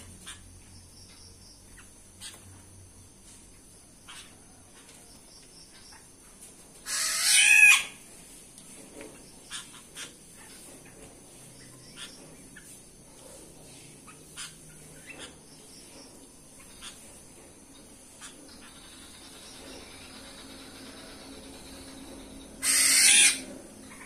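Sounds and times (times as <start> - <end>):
birds chirping softly: 0.0 - 24.0
bird squawking harshly: 6.9 - 8.0, 22.6 - 23.4.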